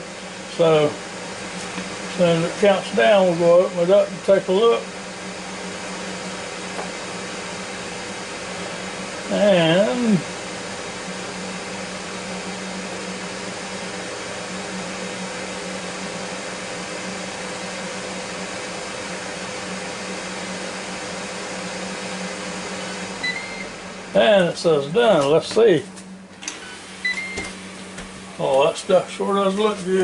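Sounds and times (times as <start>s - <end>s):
air fryer fan whooshing hum: 0.0s - 30.0s
short electronic beep: 26.7s - 27.5s.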